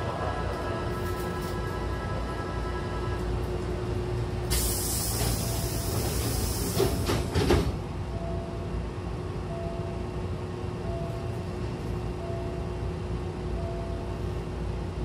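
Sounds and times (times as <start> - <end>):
low train rumble: 0.0 - 15.0
pneumatic door air hiss: 4.5 - 7.6
train doors knocking shut: 4.5 - 7.9.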